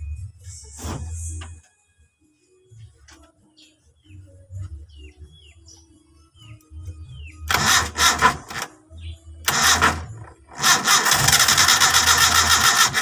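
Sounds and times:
starter motor cranking engine: 0:07.5 - 0:08.8, 0:09.4 - 0:13.0.

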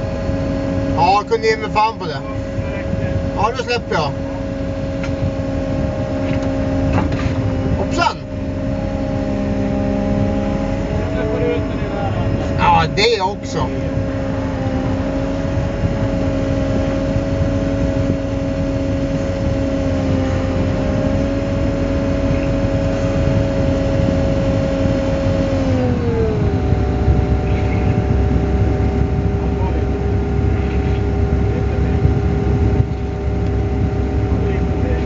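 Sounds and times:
excavator engine humming: 0:00.0 - 0:35.0
hydraulic whine: 0:00.0 - 0:35.0
low rumble: 0:00.0 - 0:35.0.

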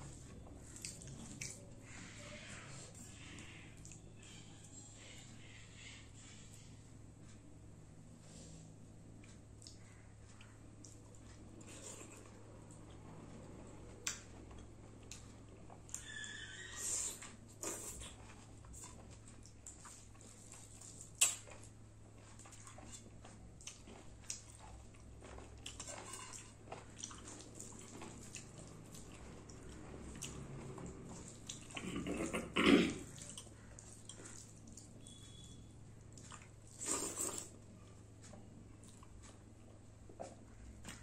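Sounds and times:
wet chewing: 0:17.0 - 0:37.6.

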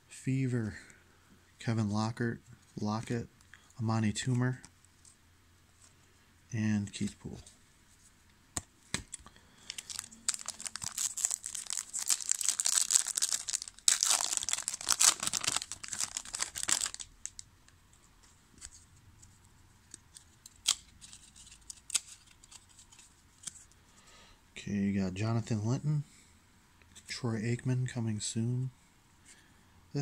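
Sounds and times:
foil pack tearing and crinkling: 0:09.7 - 0:17.1.

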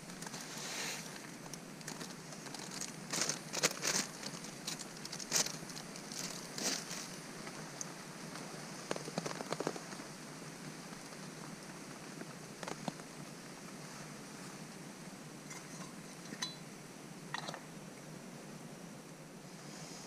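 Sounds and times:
plastic packet crinkling: 0:01.4 - 0:07.1.

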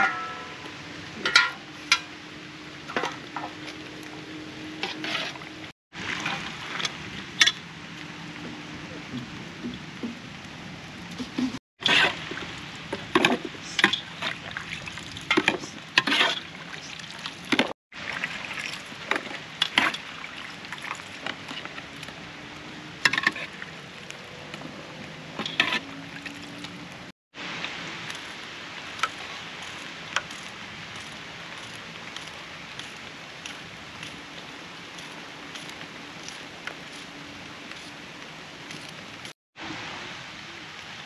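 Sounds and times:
steady cooking hiss: 0:27.4 - 0:41.0.

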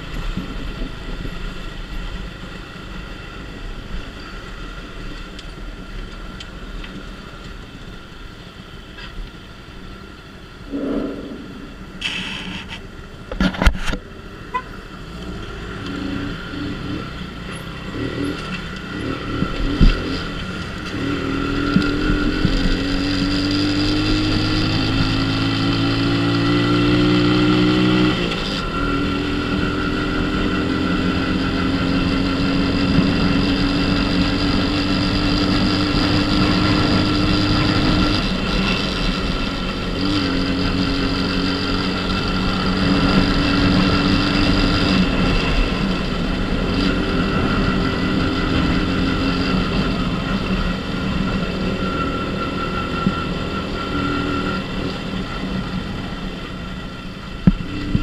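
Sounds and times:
small motorcycle engine accelerating: 0:14.9 - 0:58.0.

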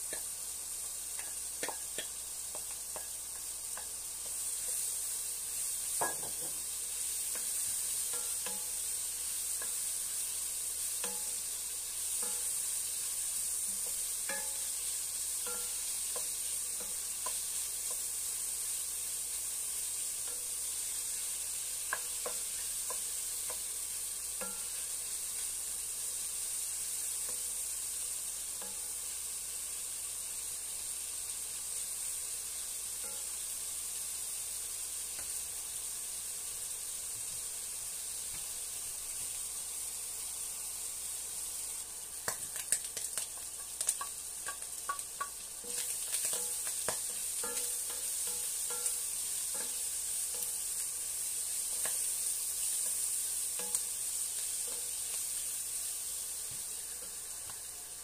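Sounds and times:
food sizzling in a pan: 0:00.0 - 0:58.0
spoon knocking against pan: 0:01.2 - 0:04.4, 0:06.0 - 0:06.6, 0:43.4 - 0:49.0.

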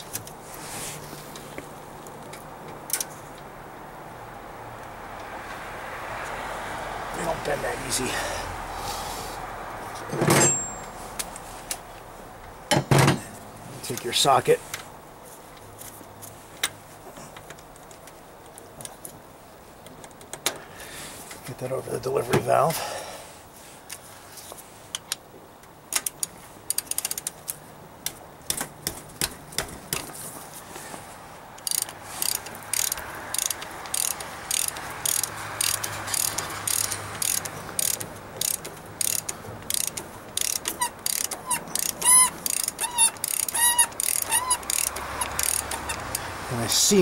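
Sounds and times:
hand ratchet clicking: 0:31.6 - 0:46.3
short squeaks: 0:31.7 - 0:46.2.

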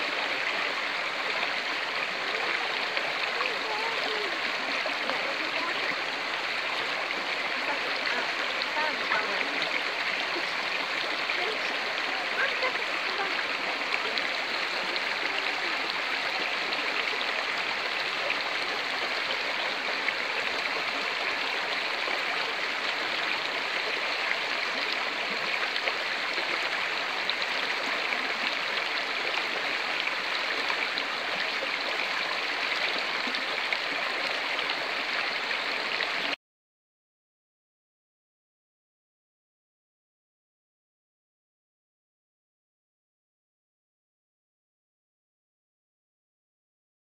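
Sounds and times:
stream rushing over rocks: 0:00.0 - 0:36.4.

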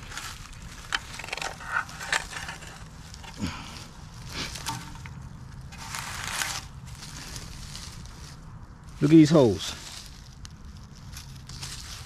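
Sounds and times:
soil crumbling and scraping: 0:00.0 - 0:12.0.

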